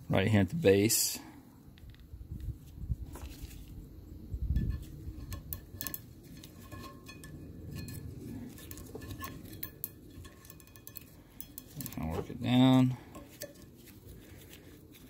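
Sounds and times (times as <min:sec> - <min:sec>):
metal pliers clinking on rod: 0:04.6 - 0:13.8.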